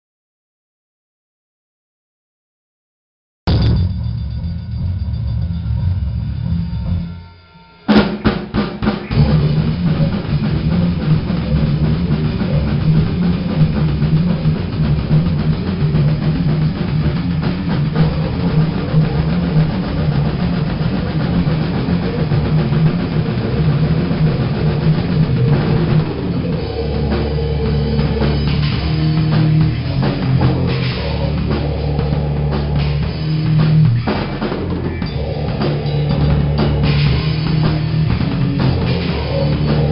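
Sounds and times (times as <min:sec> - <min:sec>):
dense drum kit playing: 0:03.5 - 0:39.9
grindcore metal song: 0:03.5 - 0:39.9.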